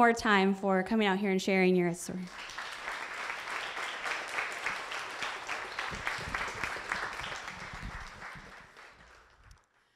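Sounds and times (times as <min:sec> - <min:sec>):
audience applauding: 0:02.3 - 0:09.9.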